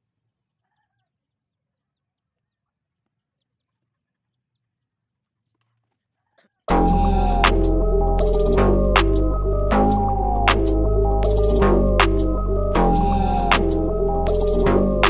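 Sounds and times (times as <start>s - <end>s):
loud background music: 6.7s - 15.0s.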